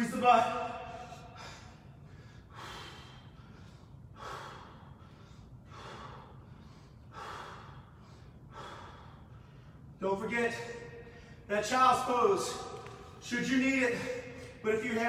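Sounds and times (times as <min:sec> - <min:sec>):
man breathing hard: 0:00.8 - 0:10.0.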